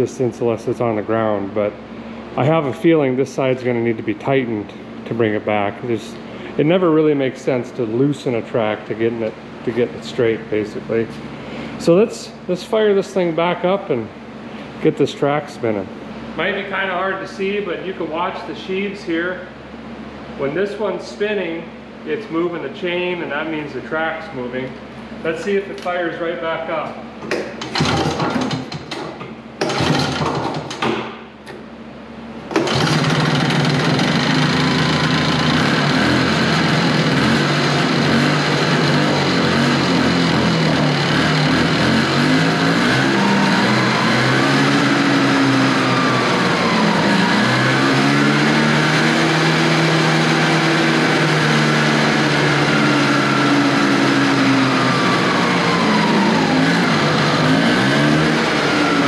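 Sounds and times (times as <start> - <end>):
snowmobile engine surging: 32.6 - 59.0.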